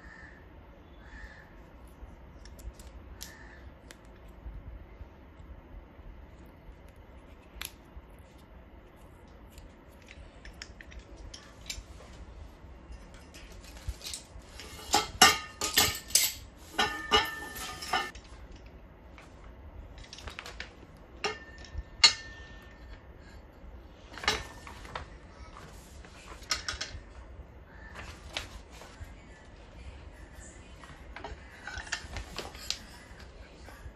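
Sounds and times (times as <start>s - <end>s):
metal parts clinking and knocking: 9.6s - 11.9s, 12.9s - 18.6s, 26.4s - 27.0s.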